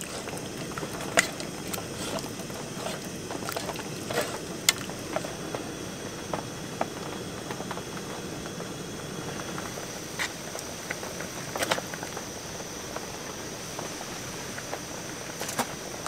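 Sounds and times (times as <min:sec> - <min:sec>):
tofu clicking and splashing: 0:00.0 - 0:05.3
steady background hiss: 0:00.0 - 0:16.0
stew simmering in a pot: 0:00.0 - 0:16.0.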